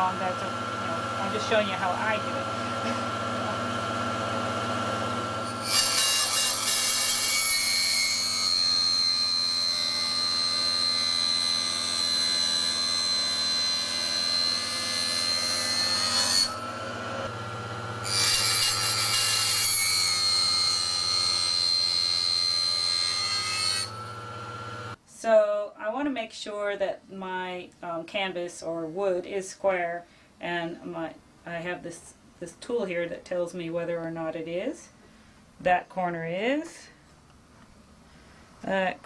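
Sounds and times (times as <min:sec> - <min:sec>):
saw motor hum: 0:00.0 - 0:25.0
table saw cutting whine: 0:00.0 - 0:25.0.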